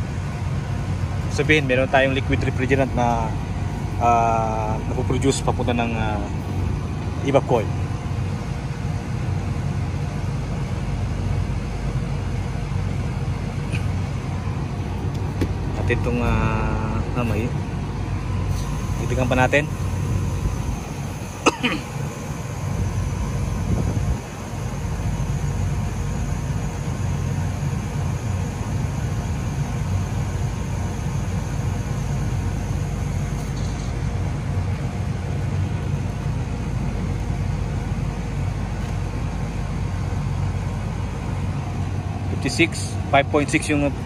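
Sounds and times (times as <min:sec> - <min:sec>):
air conditioner unit humming: 0:00.0 - 0:44.0
sharp click: 0:33.4 - 0:34.0.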